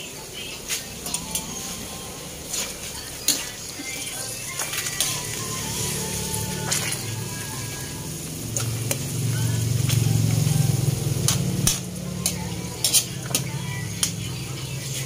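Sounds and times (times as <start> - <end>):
metal spatula scraping wok: 0.8 - 8.9, 11.1 - 13.5
deep-frying sizzle in oil: 2.4 - 15.0.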